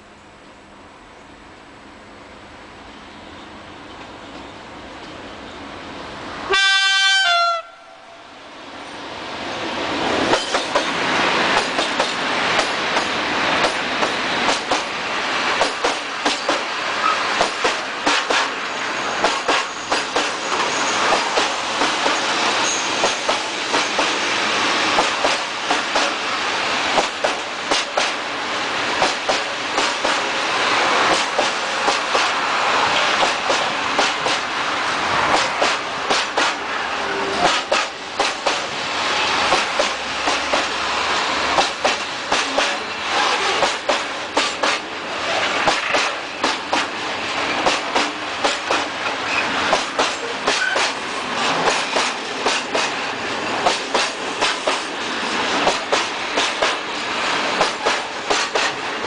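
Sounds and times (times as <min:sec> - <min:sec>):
freight train rumbling and rattling: 0:00.0 - 0:59.0
wheels clacking over rail joints: 0:10.2 - 0:24.2, 0:24.9 - 0:26.2, 0:26.9 - 0:28.3, 0:29.0 - 0:30.4, 0:31.0 - 0:34.6, 0:41.5 - 0:53.0, 0:53.6 - 0:59.0.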